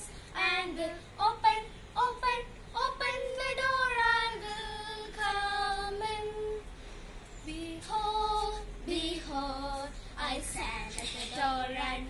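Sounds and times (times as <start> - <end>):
girls singing unaccompanied: 0.0 - 6.7, 7.4 - 12.0.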